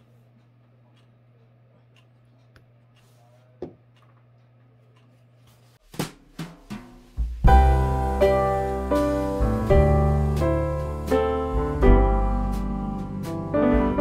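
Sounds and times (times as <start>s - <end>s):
background music with drum hits: 5.8s - 14.0s
low steady hum: 7.4s - 14.0s.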